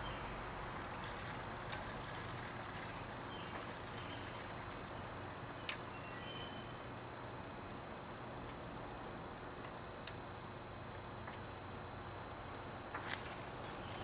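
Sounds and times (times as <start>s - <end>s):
faint bird chirps: 5.6s - 6.8s.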